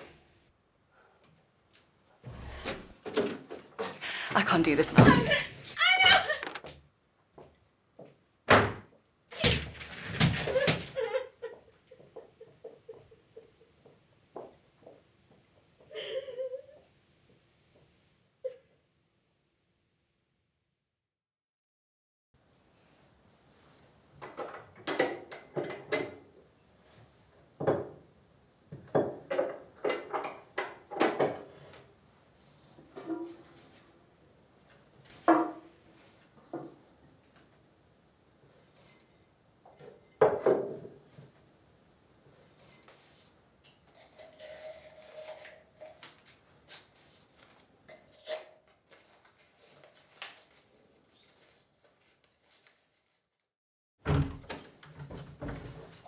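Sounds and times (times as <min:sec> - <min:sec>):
cardboard and paper rustling: 0:48.7 - 0:53.3.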